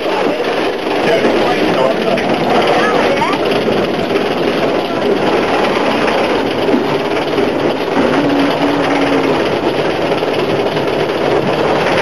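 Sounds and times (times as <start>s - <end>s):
steam locomotive running: 0.0s - 12.0s.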